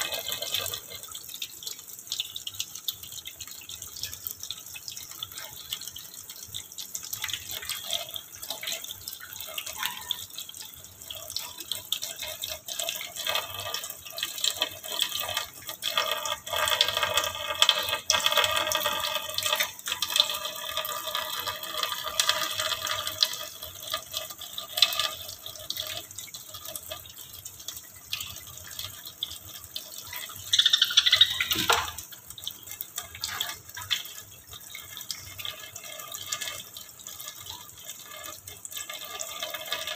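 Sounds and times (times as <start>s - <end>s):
dripping water: 0.0s - 39.9s
squeak gliding downward: 30.5s - 31.8s
tap water splashing: 30.5s - 34.1s.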